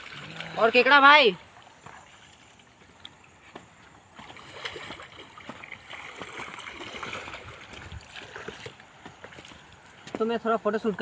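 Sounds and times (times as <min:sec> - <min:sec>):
footsteps on loose stones: 0:07.6 - 0:11.0.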